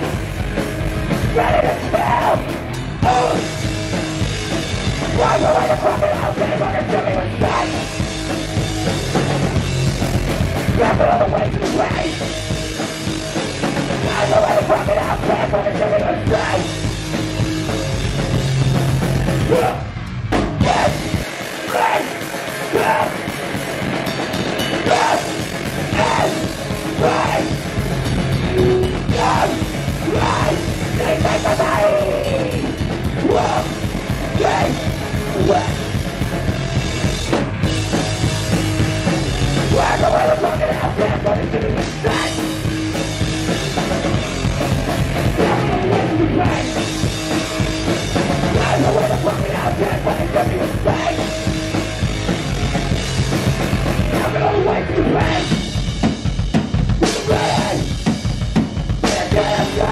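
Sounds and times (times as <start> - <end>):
bass guitar: 0.0 - 59.9
distorted guitar: 0.0 - 59.9
fast drums: 0.0 - 59.9
singer shouting into microphone: 20.6 - 23.2.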